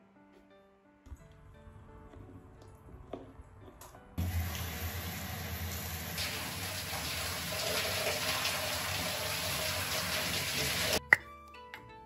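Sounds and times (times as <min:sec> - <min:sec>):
shower head spraying water: 0:04.2 - 0:11.0.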